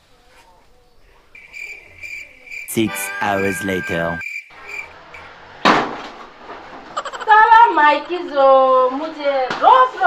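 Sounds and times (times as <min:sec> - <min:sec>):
crickets chirping: 0:00.8 - 0:05.3.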